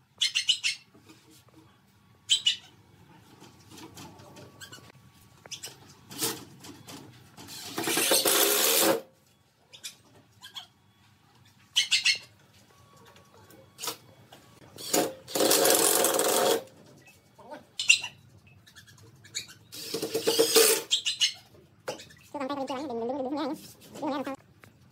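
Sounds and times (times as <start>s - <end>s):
cordless drill driving screws: 19.8s - 20.9s.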